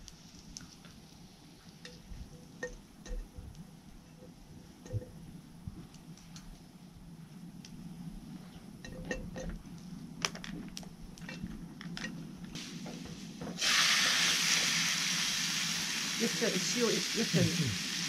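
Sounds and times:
steak sizzling in hot fat: 0:12.5 - 0:18.0.

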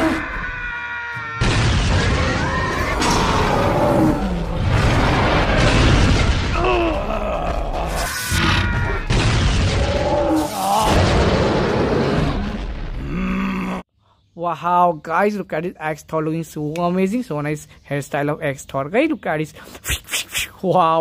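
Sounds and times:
cartoon booms and blasts: 0:01.4 - 0:13.4
vocal cries and grunts: 0:06.5 - 0:09.1, 0:13.0 - 0:13.9.

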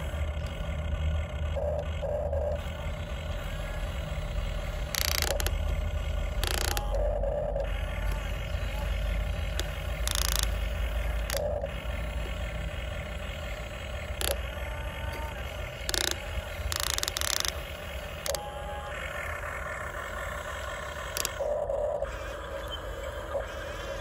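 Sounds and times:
low steady rumble: 0:00.0 - 0:24.0
toy excavator motors whining: 0:00.0 - 0:24.0.

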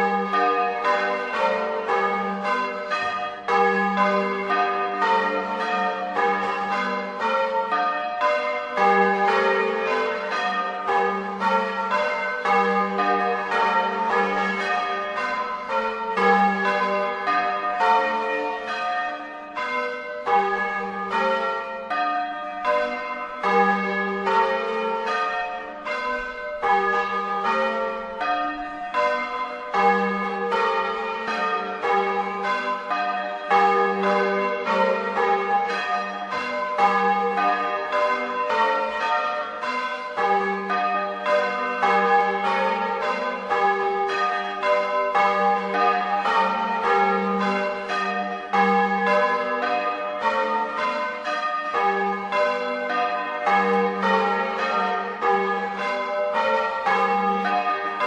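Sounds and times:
church bells pealing: 0:00.0 - 0:58.0.

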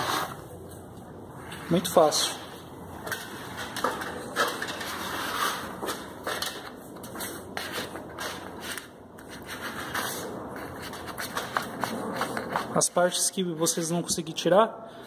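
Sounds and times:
spatula scraping wallpaper off wall: 0:00.0 - 0:00.4, 0:04.2 - 0:06.1, 0:07.2 - 0:12.9
wallpaper peeling and tearing: 0:07.2 - 0:12.9.

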